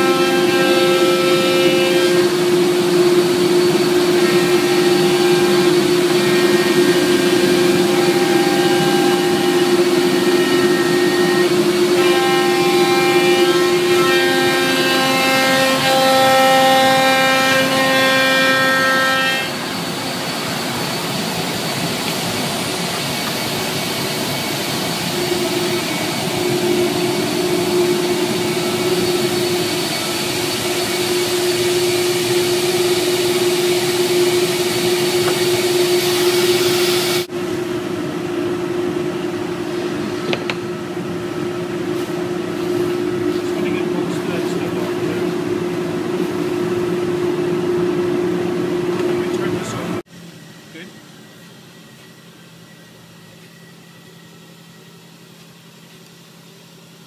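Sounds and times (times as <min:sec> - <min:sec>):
router spindle whine: 0:00.0 - 0:57.0
dust collector rushing: 0:19.5 - 0:50.0.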